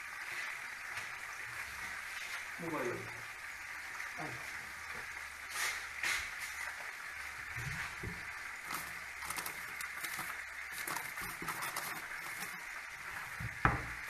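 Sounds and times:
chicken sizzling in oil: 0.0 - 14.0
oil pops and crackles: 7.5 - 14.0.

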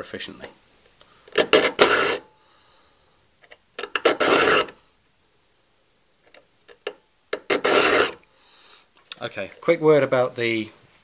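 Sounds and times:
file rasping on saw teeth: 1.4 - 2.2, 3.9 - 4.8, 7.4 - 8.2.

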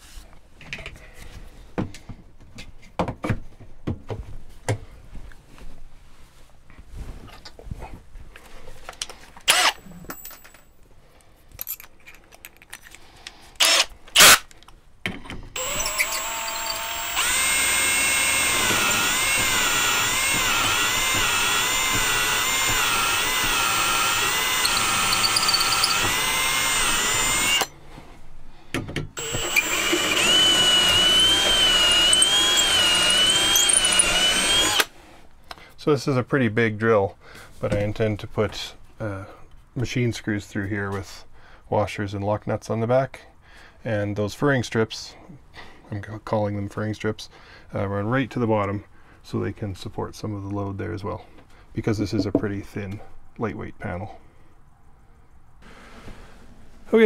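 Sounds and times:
cordless drill whine: 9.5 - 9.8, 13.6 - 14.4, 15.6 - 27.7, 29.2 - 34.9.

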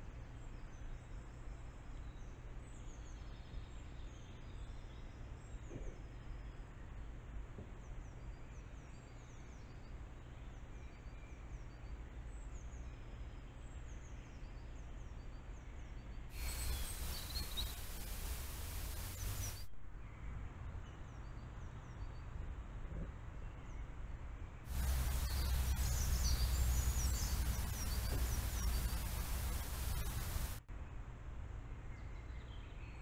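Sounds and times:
small forest birds singing: 0.1 - 22.4, 23.4 - 24.0, 24.6 - 30.9, 31.7 - 33.0
loud even hiss: 16.4 - 19.7, 24.7 - 30.6
low steady rumble: 24.7 - 30.6.

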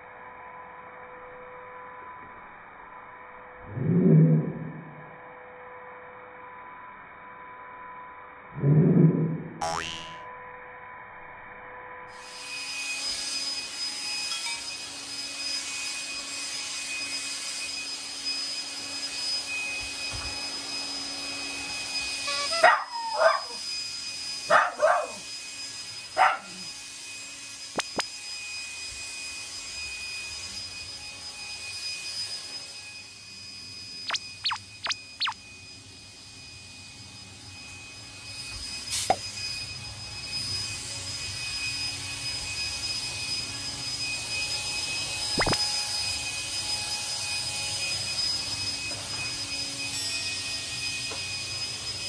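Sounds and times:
vacuum cleaner high whine: 11.7 - 52.0
dog barking: 22.5 - 23.6, 24.5 - 25.2, 26.2 - 26.6.

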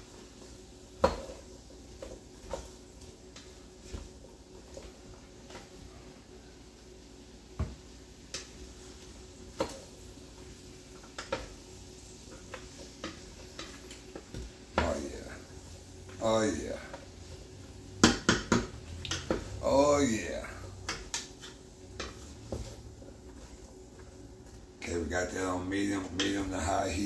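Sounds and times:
wooden spoon knocking pot: 18.0 - 19.6.

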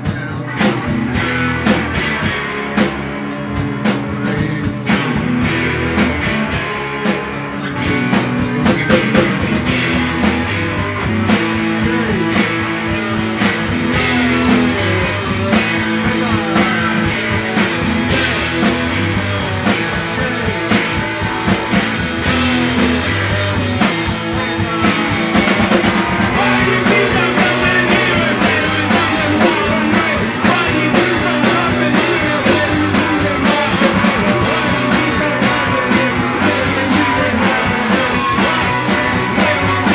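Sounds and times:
rock band playing live: 0.0 - 39.9.

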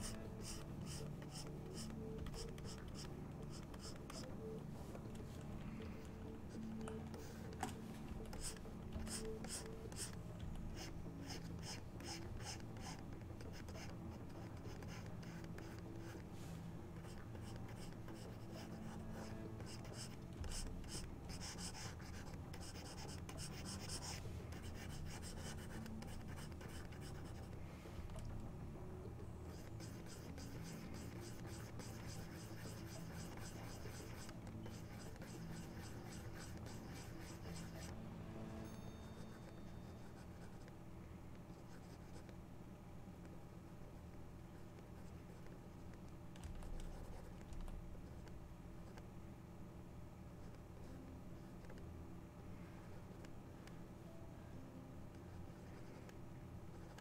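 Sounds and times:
stylus scratching on tablet: 0.0 - 27.7, 29.4 - 38.0, 39.1 - 40.7, 55.2 - 57.0
steady low hum: 0.0 - 57.0.

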